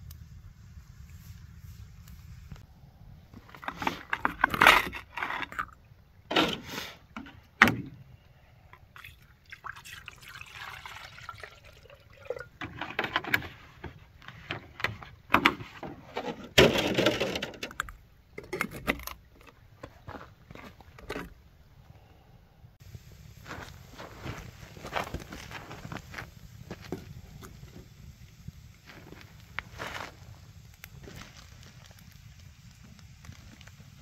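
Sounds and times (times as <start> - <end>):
water pouring into kettle: 8.9 - 12.6.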